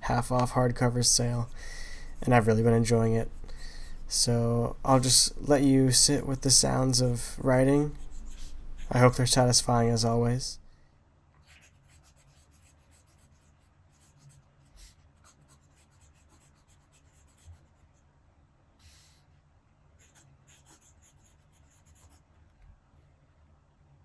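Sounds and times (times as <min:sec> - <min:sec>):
pen nib scratching on paper: 0:07.8 - 0:09.2, 0:11.4 - 0:18.0, 0:20.0 - 0:22.7.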